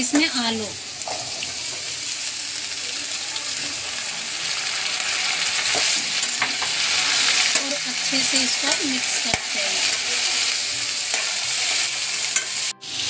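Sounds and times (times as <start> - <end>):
potatoes sizzling in hot oil: 0.0 - 13.0
steel spoon clinking on pan: 5.6 - 12.7.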